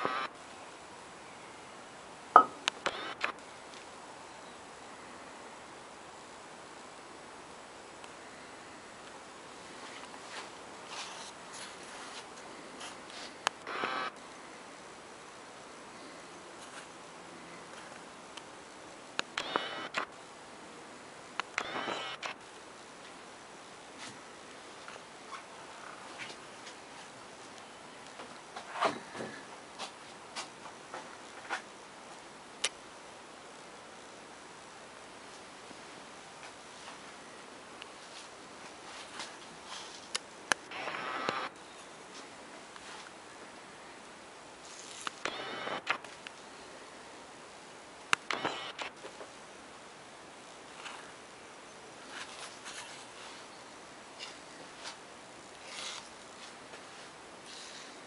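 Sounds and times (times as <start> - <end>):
steady low hiss: 0.0 - 58.0
camera handling rustles and clicks: 44.6 - 46.3, 55.6 - 56.2.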